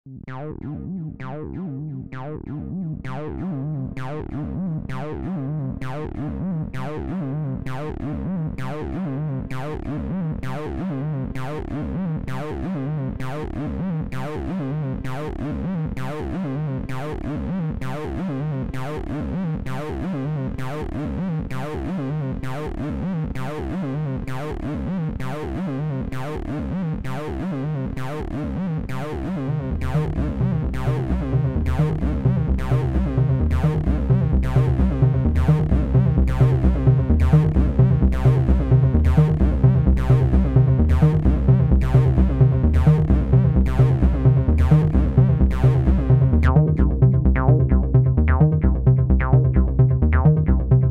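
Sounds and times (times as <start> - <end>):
synthesizer plucked notes: 0.1 - 50.9
sustained low synth chord: 29.5 - 50.9.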